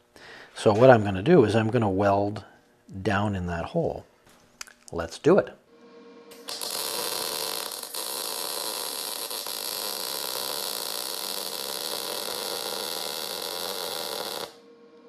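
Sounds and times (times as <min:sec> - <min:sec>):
faint hum: 0:00.0 - 0:15.0
welding arc hissing: 0:06.3 - 0:14.6.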